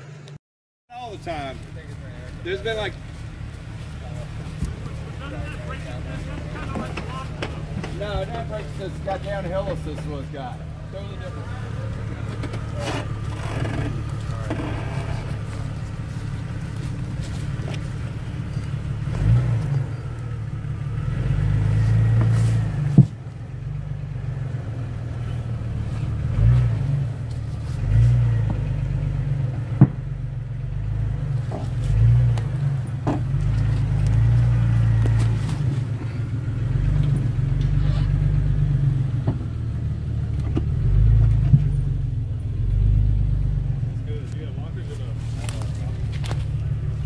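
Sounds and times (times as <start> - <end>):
suv engine idling and revving: 0.0 - 47.0.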